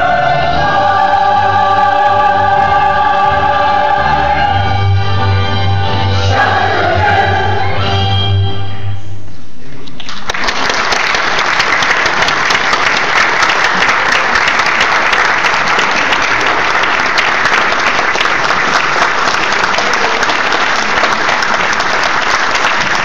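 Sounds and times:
crowd applauding: 10.0s - 23.0s.

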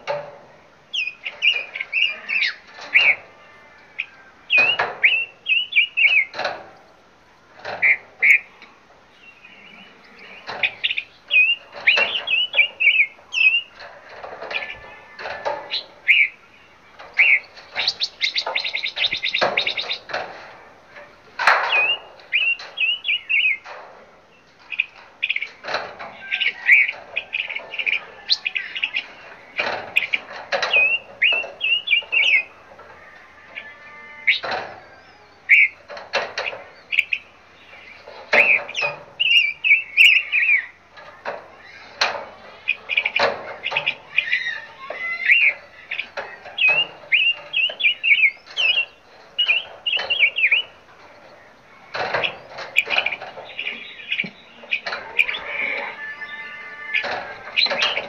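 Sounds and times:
birds chirping: 0.0s - 58.0s
harsh bird calls: 0.0s - 58.0s.

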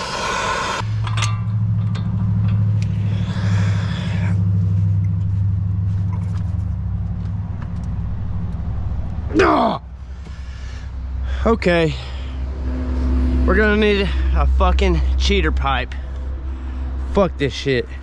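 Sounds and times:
gas torch flame hissing: 0.0s - 0.8s
low rumbling drone: 0.0s - 18.0s
metallic clicks and knocks: 1.0s - 3.0s.

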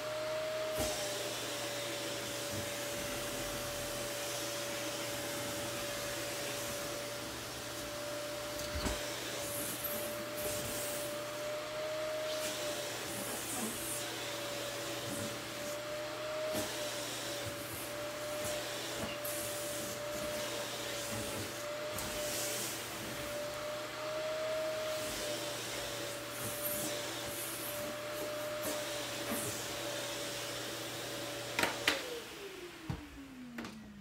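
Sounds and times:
vacuum cleaner whining: 0.0s - 34.0s.

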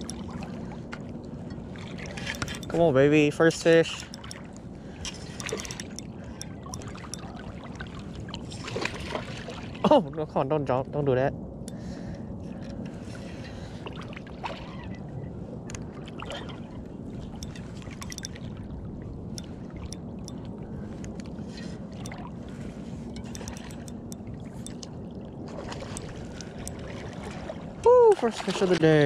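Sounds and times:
water drips and splashes: 0.0s - 2.9s, 3.9s - 10.0s, 15.7s - 29.0s
river current rushing and gurgling: 0.0s - 10.1s, 11.6s - 29.0s.

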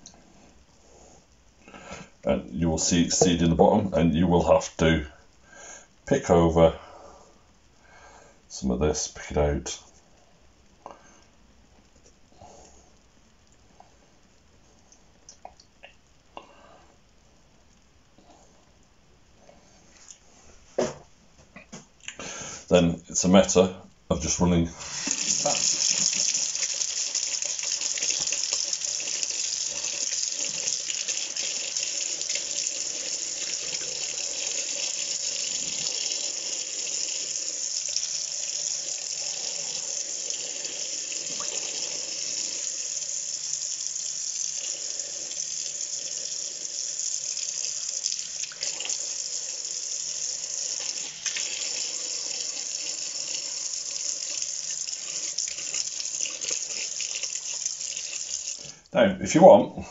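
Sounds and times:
tap water splashing into sink: 24.9s - 32.7s.

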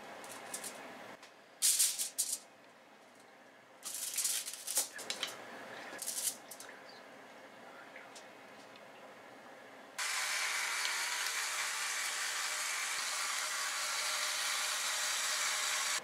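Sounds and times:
aluminium foil crinkling: 3.8s - 5.2s.

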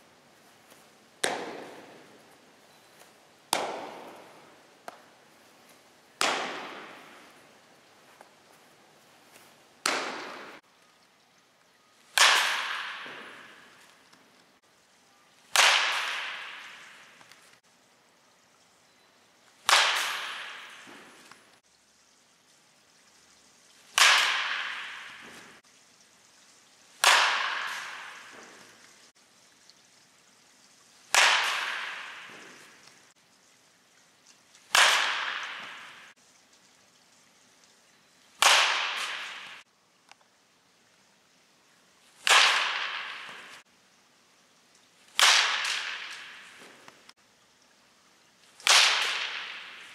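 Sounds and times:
bat striking ball: 1.2s - 2.2s, 3.5s - 5.1s, 6.2s - 7.5s, 9.8s - 10.6s, 12.1s - 14.0s, 15.5s - 17.4s, 19.6s - 21.4s, 23.9s - 25.6s, 27.0s - 28.8s, 31.1s - 32.9s, 34.7s - 36.1s, 38.4s - 39.6s, 42.2s - 43.6s, 45.2s - 47.0s, 48.6s - 49.9s.

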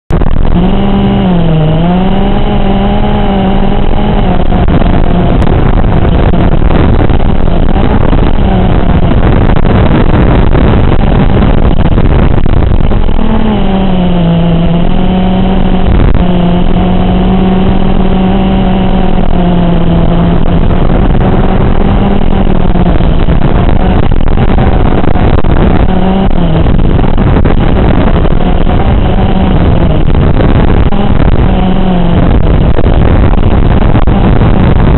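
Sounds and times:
drone motors whining: 0.1s - 34.9s.

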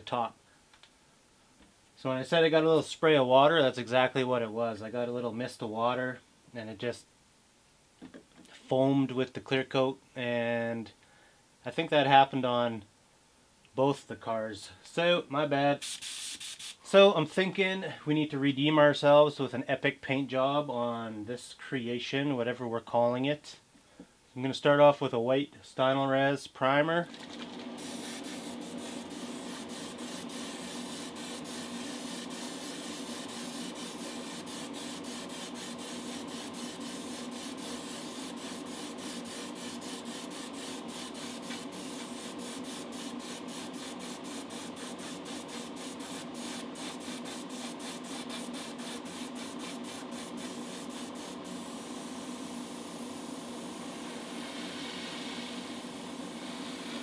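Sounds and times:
airbrush spraying hiss: 15.8s - 16.9s, 27.8s - 57.0s.

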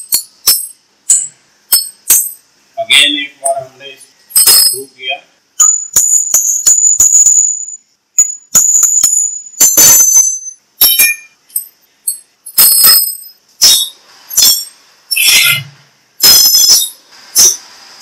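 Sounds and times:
ringing metal-on-metal knocks: 5.6s - 14.7s.

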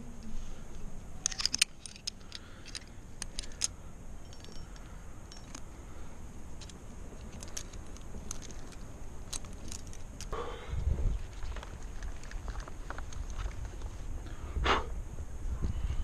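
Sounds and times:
low steady rumble: 0.0s - 16.0s
metal climbing gear clinking: 1.1s - 10.4s.

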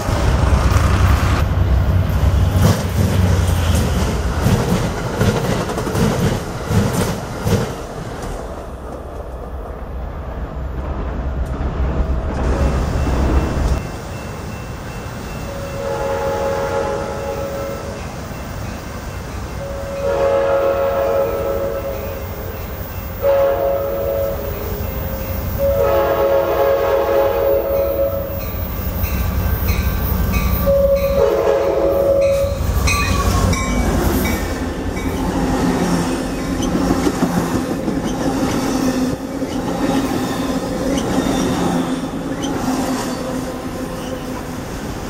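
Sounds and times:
train wheels clattering on rails: 0.0s - 9.4s, 32.2s - 43.3s
train horn blasts: 15.5s - 18.0s, 19.6s - 22.3s, 23.2s - 28.5s, 30.6s - 32.7s.

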